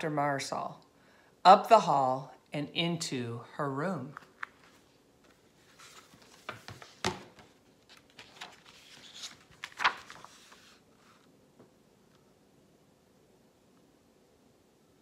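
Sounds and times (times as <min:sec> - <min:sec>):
book pages rustling: 0:04.1 - 0:11.3.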